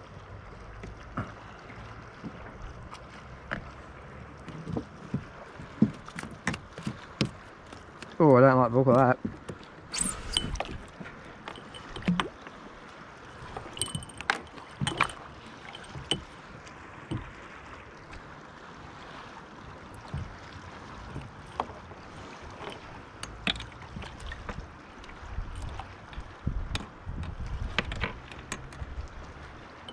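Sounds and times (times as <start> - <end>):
water lapping at a hull: 0.0 - 29.9
knocks and clicks of fishing gear: 4.4 - 8.2, 8.9 - 12.5, 13.4 - 16.4, 17.1 - 17.3, 20.0 - 20.4, 22.6 - 24.6, 25.5 - 28.9.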